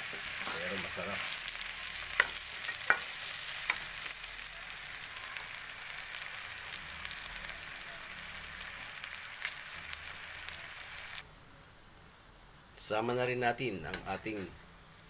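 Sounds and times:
small pops of frying: 0.0s - 11.2s
meat and potatoes sizzling in wok: 0.0s - 12.4s.

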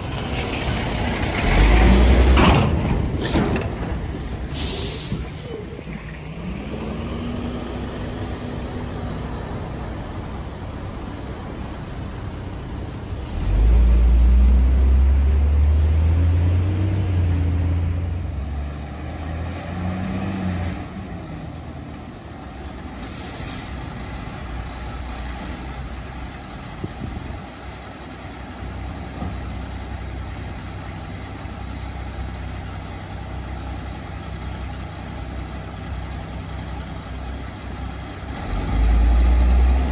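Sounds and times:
air brake hiss: 4.1s - 5.6s, 22.3s - 24.2s.

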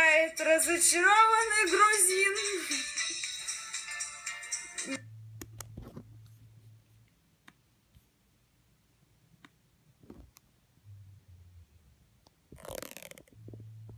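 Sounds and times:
low steady hum: 5.0s - 13.9s.

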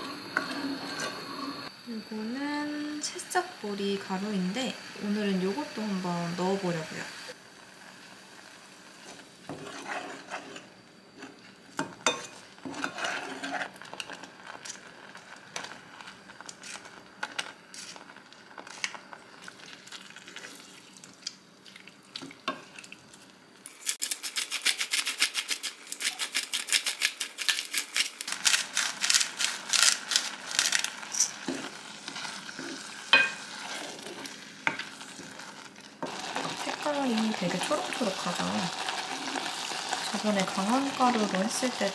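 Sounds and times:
wooden spoon stirring in saucepan: 0.0s - 1.7s, 9.0s - 23.2s, 31.0s - 41.9s
soup wet crackling: 13.6s - 41.9s.

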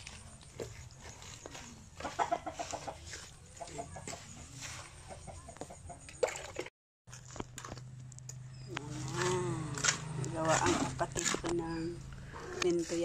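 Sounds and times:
hen clucking: 1.6s - 6.0s
trowel scraping wet cement: 8.9s - 13.0s.

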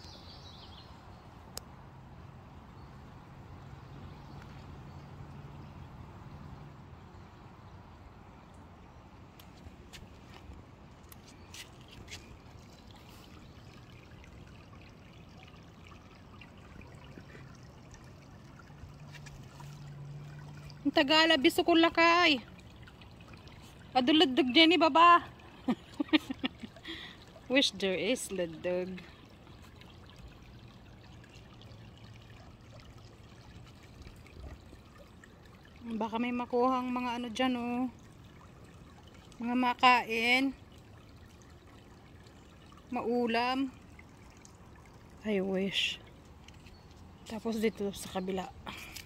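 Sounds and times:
creek trickling faintly: 0.0s - 49.0s.

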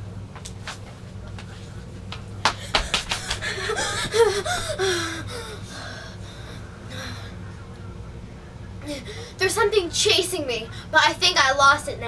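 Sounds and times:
girl gasping and panting: 2.6s - 7.2s.

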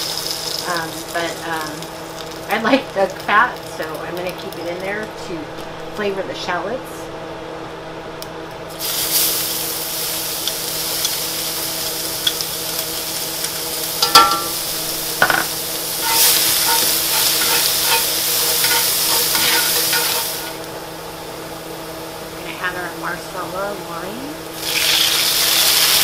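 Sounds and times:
shallots sizzling in fat: 0.0s - 6.7s, 8.2s - 26.0s
metal tongs clicking on pan: 14.0s - 14.6s, 16.0s - 20.4s.

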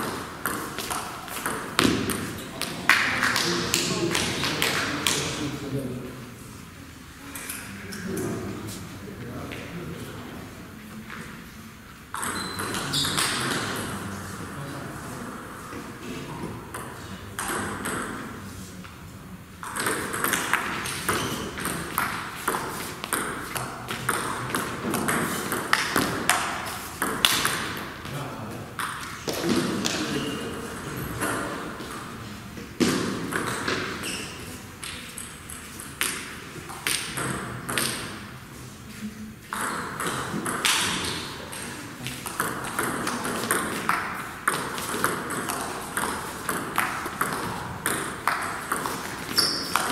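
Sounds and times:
table tennis ball pinging: 0.0s - 3.1s, 12.1s - 13.9s, 16.7s - 18.3s, 19.6s - 28.0s, 32.8s - 38.2s, 39.5s - 49.9s.

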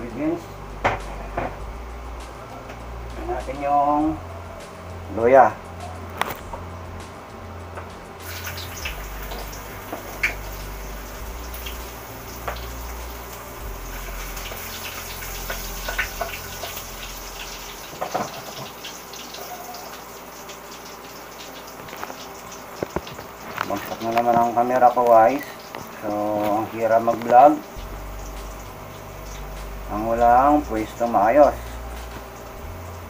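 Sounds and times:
oil sizzling in a wok: 8.1s - 33.0s.

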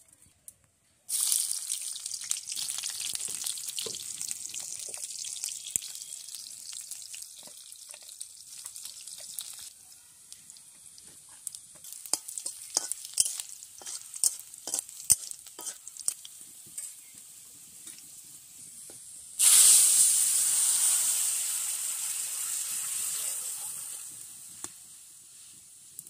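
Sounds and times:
loud sizzle: 1.1s - 26.0s
spices frying in oil: 1.1s - 26.0s
metal spatula scraping a pan: 11.1s - 17.0s.

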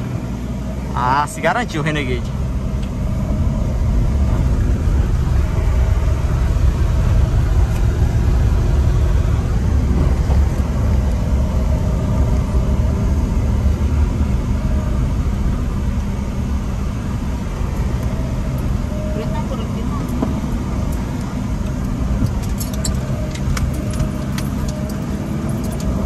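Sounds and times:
car engine and driving rumble: 0.0s - 26.0s.

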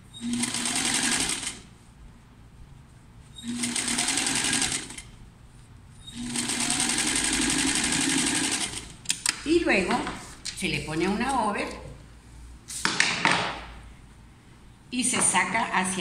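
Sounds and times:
electric sewing machine stitching: 0.2s - 1.6s, 3.4s - 5.1s, 6.1s - 8.9s.

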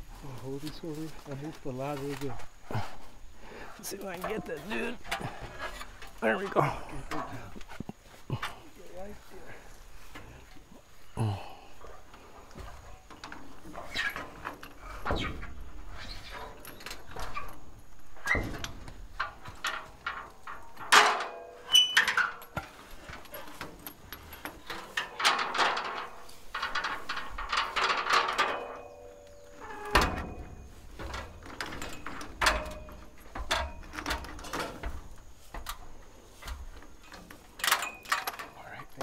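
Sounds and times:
rustling: 0.0s - 39.0s
knocks and clanks on metal: 11.8s - 38.6s.

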